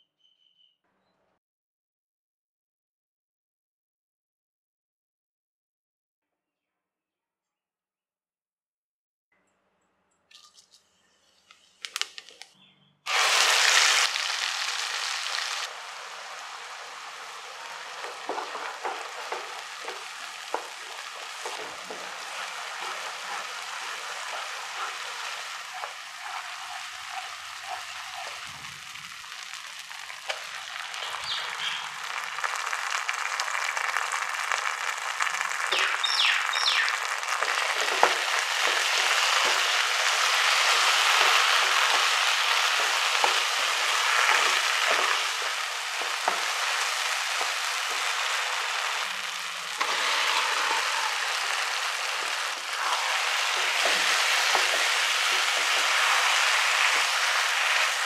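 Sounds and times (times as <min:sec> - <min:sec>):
paste sizzling in hot oil: 0:13.1 - 0:58.0
wooden spatula scraping pan: 0:17.2 - 0:28.8, 0:37.3 - 0:49.1, 0:49.7 - 0:58.0.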